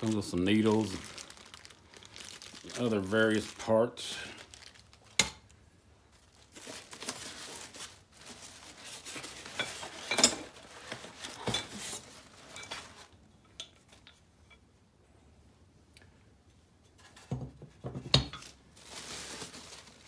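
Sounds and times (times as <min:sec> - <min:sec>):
plastic wrapping crinkling: 0:00.0 - 0:13.2, 0:18.3 - 0:20.0.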